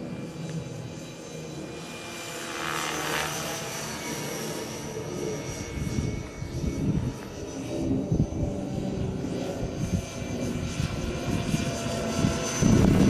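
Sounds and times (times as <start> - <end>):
rc helicopter motor whine: 0.0 - 13.0
rotor blades rushing: 0.0 - 13.0
wind buffeting microphone: 4.9 - 13.0.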